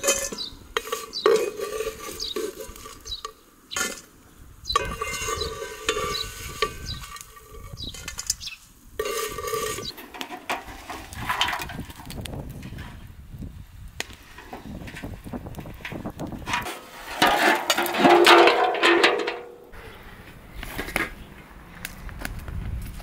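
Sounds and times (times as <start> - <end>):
metal spoon scraping a pan: 0.0 - 4.1, 4.7 - 13.1, 14.3 - 19.4.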